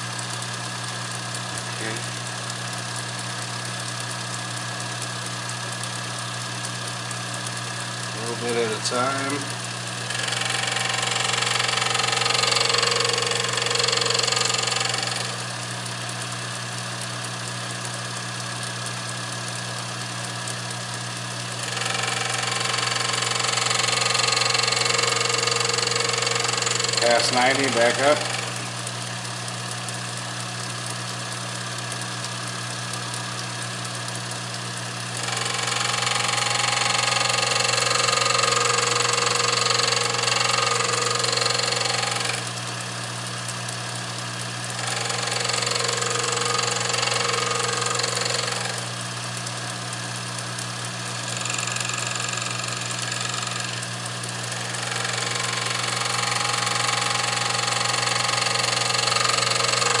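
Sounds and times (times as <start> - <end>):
grinding wheel humming: 0.0 - 60.0
harsh grinding noise: 7.9 - 16.4, 21.3 - 29.6, 34.8 - 60.0.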